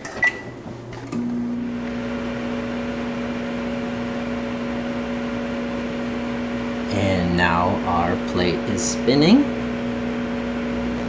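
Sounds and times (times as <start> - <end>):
microwave humming with fan noise: 0.0 - 11.0
microwave short beep: 0.1 - 0.6.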